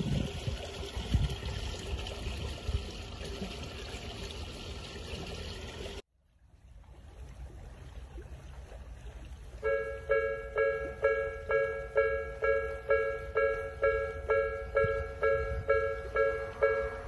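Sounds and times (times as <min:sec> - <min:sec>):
outdoor background noise: 0:00.0 - 0:17.0
level-crossing electronic bell: 0:09.6 - 0:17.0.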